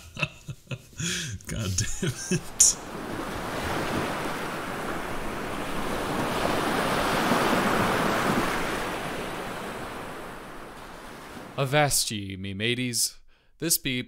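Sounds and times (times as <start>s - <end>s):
ocean wave washing in: 2.5s - 11.6s.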